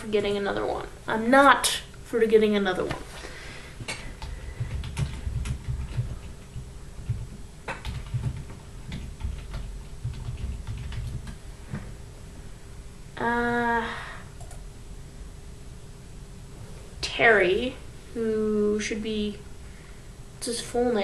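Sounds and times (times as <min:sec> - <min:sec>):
faint steady hum: 0:00.0 - 0:21.0
typing on computer keyboard: 0:04.2 - 0:11.4.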